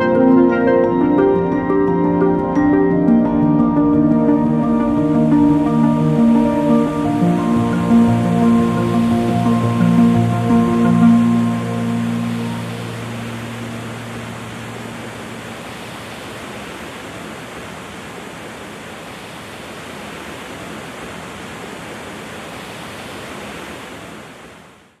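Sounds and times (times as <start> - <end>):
background music: 0.0 - 15.6
stream water rushing over rocks: 3.2 - 25.0.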